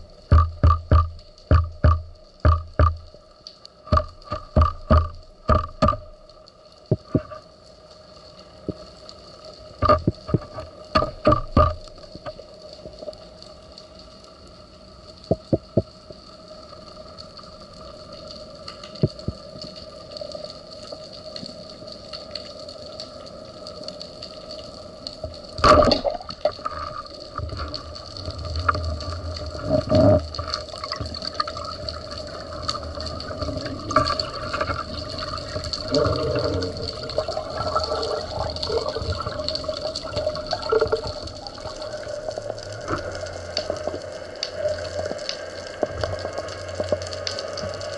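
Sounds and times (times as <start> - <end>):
churning water: 0.0 - 3.2, 3.8 - 6.3, 25.6 - 47.9
sharp knock: 0.3 - 3.0, 3.9 - 6.0
underwater water hiss: 26.2 - 47.9.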